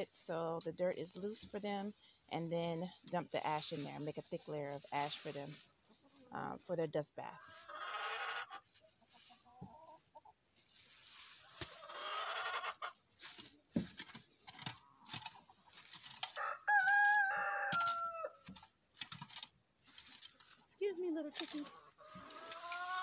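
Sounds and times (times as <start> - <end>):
hand tool scraping soil: 0.0 - 23.0
hens clucking: 0.0 - 23.0
hen long drawn-out call: 7.4 - 10.3, 11.7 - 13.0, 16.4 - 18.4, 21.6 - 23.0.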